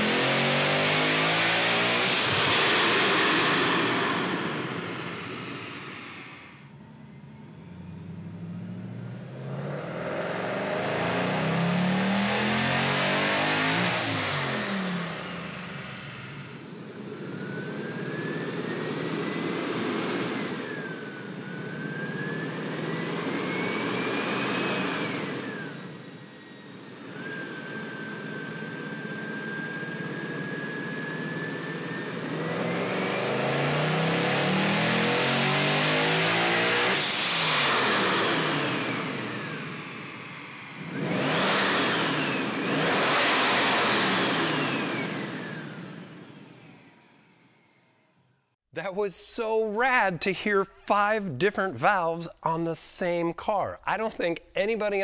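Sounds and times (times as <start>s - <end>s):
engine revving loudly: 0.0s - 6.6s, 7.7s - 46.9s
supercharger whine: 0.0s - 50.0s.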